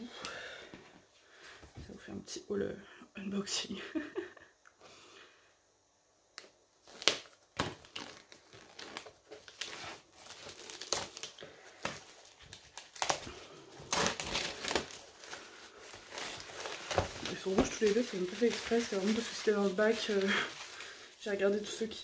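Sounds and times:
plastic shrink-wrap crinkling: 0:06.8 - 0:22.0.

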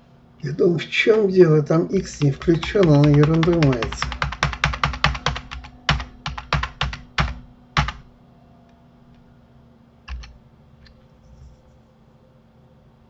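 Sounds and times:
keyboard keystrokes: 0:02.0 - 0:08.1, 0:10.1 - 0:10.4.

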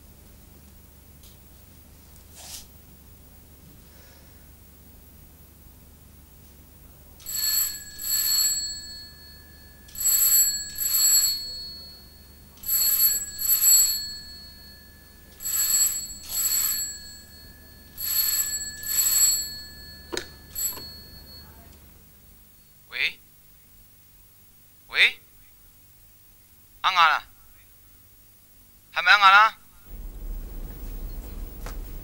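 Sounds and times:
telephone bell ringing: 0:07.2 - 0:21.7.

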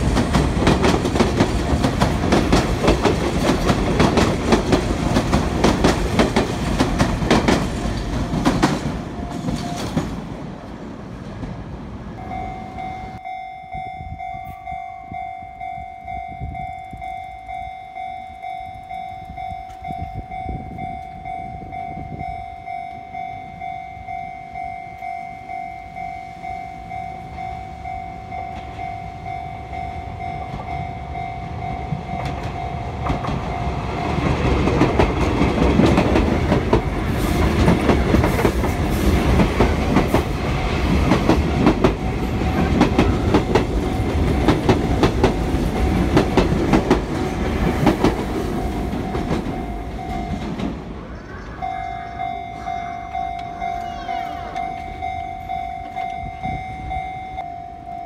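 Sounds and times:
level-crossing warning bell: 0:00.0 - 0:10.4, 0:12.1 - 0:58.0
train wheels clattering: 0:00.0 - 0:10.4, 0:30.3 - 0:51.0.

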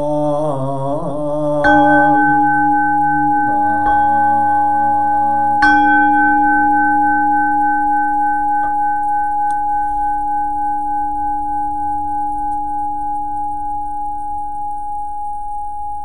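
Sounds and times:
temple bowl bell ringing: 0:01.6 - 0:12.5.

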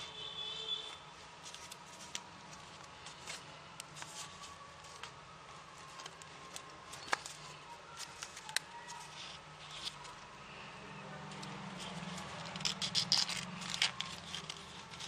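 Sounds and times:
paper rustling and crackling: 0:00.9 - 0:10.3, 0:11.2 - 0:15.0.

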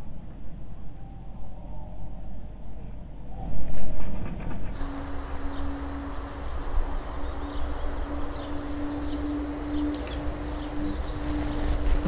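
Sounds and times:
low hum: 0:00.0 - 0:12.0
small birds chirping: 0:04.8 - 0:12.0.

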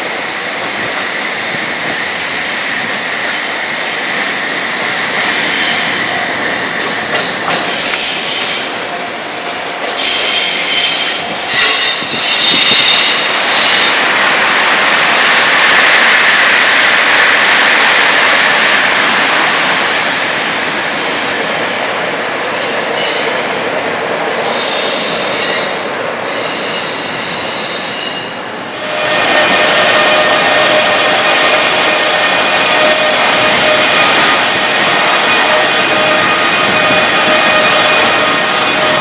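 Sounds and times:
train rushing rumble: 0:00.0 - 0:39.0
train wheels squealing: 0:00.6 - 0:14.0, 0:24.3 - 0:39.0.

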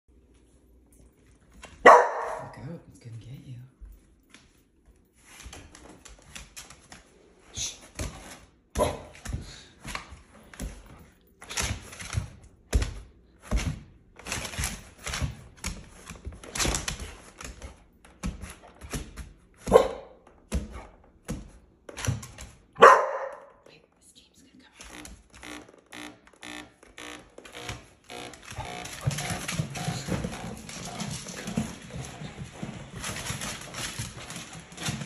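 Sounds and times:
dog barking: 0:01.8 - 0:02.5, 0:19.7 - 0:20.2, 0:22.8 - 0:23.6
paws thumping on hardwood floor: 0:08.0 - 0:23.7, 0:27.5 - 0:35.0.

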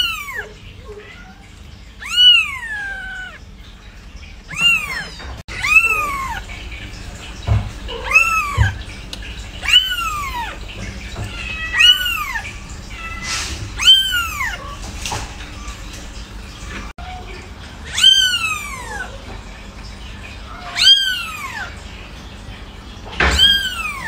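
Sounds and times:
kitten mewing: 0:02.0 - 0:03.4, 0:04.5 - 0:06.4, 0:07.9 - 0:08.8, 0:11.4 - 0:14.8.

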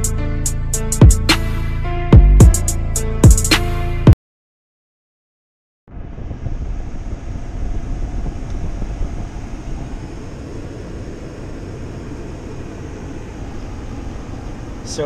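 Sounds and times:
low engine hum: 0:05.9 - 0:15.0
ventilation fan blowing: 0:05.9 - 0:15.0.

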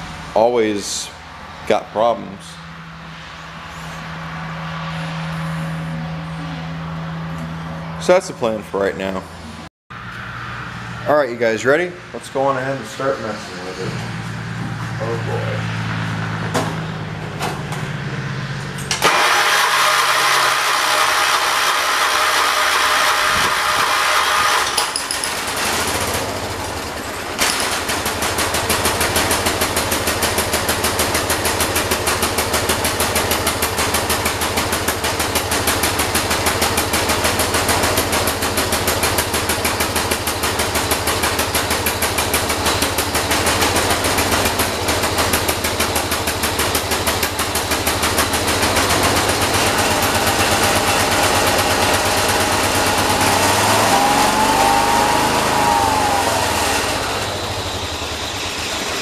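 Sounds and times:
lawn tractor engine cranking: 0:18.8 - 0:58.4
small engine running: 0:18.8 - 0:59.0.

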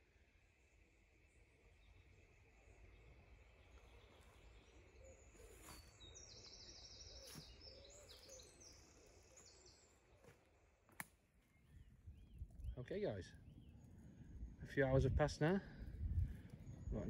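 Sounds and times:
songbird singing: 0:00.0 - 0:17.0.

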